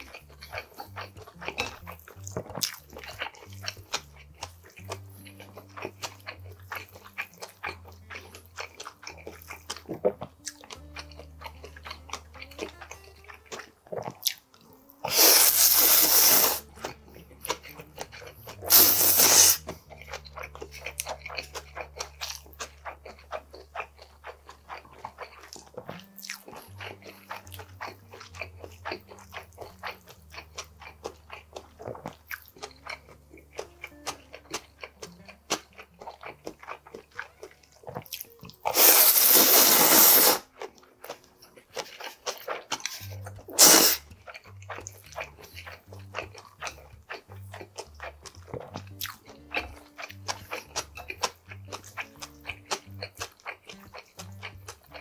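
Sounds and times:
chewing: 0:00.0 - 0:55.0
loud noodle slurps: 0:15.1 - 0:16.7, 0:18.6 - 0:19.8, 0:38.7 - 0:40.5, 0:42.8 - 0:44.1
wet mouth clicks: 0:15.1 - 0:55.0.

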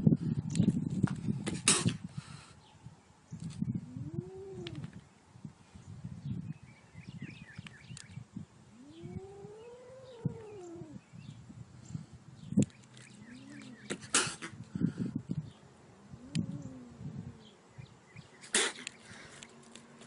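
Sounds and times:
kitten yowling: 0:08.8 - 0:11.0.

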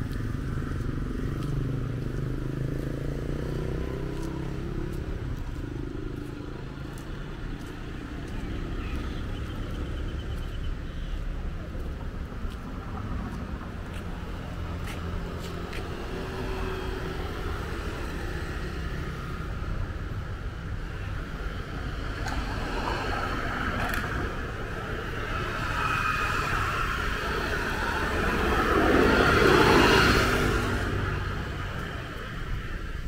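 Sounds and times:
road traffic rumble: 0:00.0 - 0:33.0
vehicle passing close: 0:00.8 - 0:07.8, 0:21.2 - 0:33.0.

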